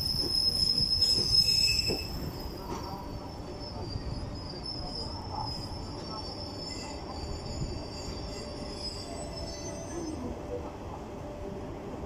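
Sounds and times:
high wheel squeal: 0:00.0 - 0:02.6, 0:03.2 - 0:10.2
train wheels rumbling on rails: 0:00.0 - 0:10.6.

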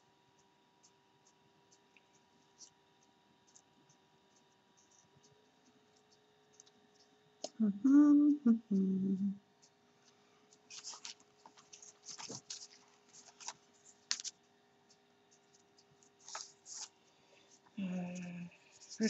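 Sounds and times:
woman humming: 0:07.5 - 0:09.4
paper rustling: 0:10.0 - 0:17.7.

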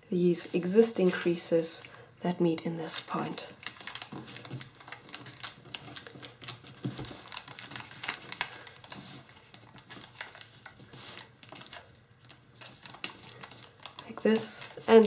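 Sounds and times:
foil paper crinkling: 0:03.4 - 0:15.0.

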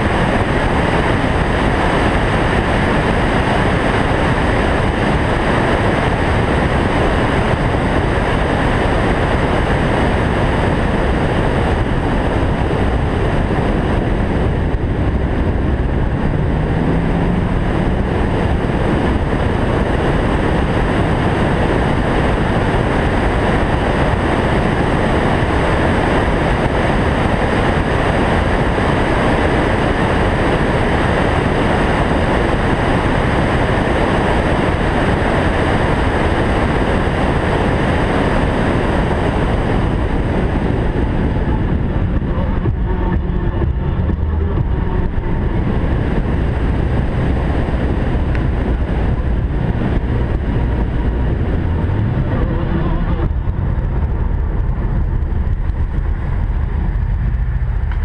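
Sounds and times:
wind and road noise: 0:00.0 - 0:58.0
faint rising hum: 0:39.8 - 0:58.0.

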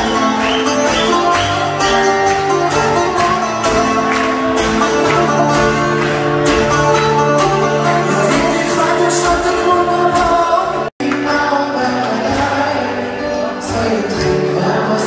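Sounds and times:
acoustic guitars playing: 0:00.0 - 0:15.0
man singing: 0:07.6 - 0:15.0.

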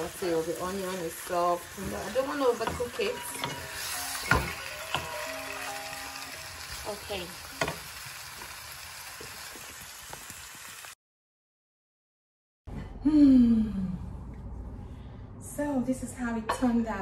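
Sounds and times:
woman's voice: 0:00.0 - 0:03.5, 0:15.4 - 0:17.0
vegetables sizzling in a frying pan: 0:00.0 - 0:11.0
wooden spoon tapping: 0:01.8 - 0:03.6.

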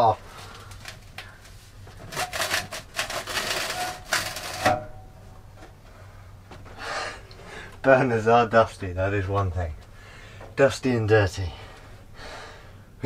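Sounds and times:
metal pipe scraping and knocking: 0:02.0 - 0:05.1.

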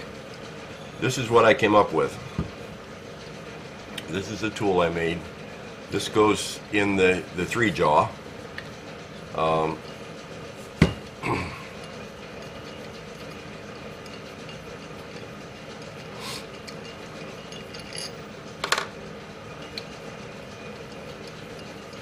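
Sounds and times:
steady low hum: 0:00.0 - 0:22.0
knocks on a workbench: 0:10.8 - 0:11.0.

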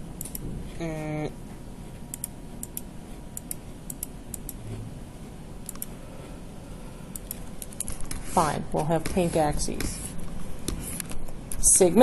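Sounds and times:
low room hum: 0:00.0 - 0:12.0
computer mouse clicks: 0:00.2 - 0:00.4, 0:02.1 - 0:04.6, 0:05.6 - 0:05.9, 0:07.1 - 0:08.2.

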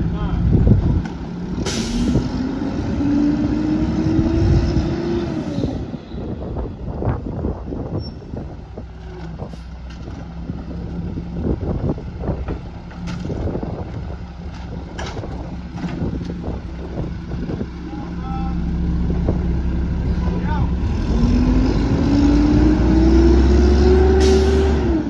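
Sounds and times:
diesel engine idling: 0:05.8 - 0:22.6.

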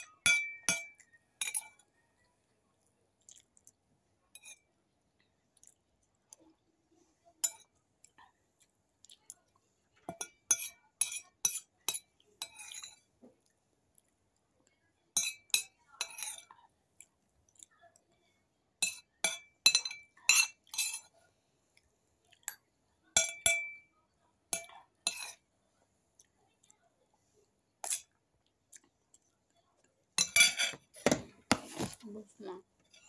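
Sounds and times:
metal spoon clinking on plate: 0:00.0 - 0:01.9, 0:10.1 - 0:13.1, 0:15.1 - 0:16.5, 0:18.8 - 0:21.1, 0:23.2 - 0:23.9, 0:24.5 - 0:25.4, 0:30.2 - 0:31.9.

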